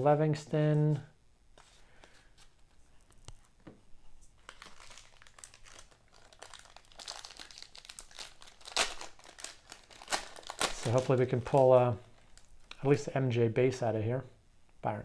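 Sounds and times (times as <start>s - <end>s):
card pack wrapper tearing: 4.4s - 12.8s.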